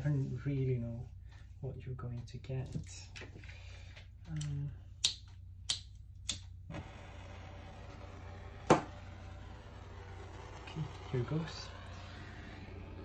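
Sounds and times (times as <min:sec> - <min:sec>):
torch flame hissing: 0:06.7 - 0:13.0.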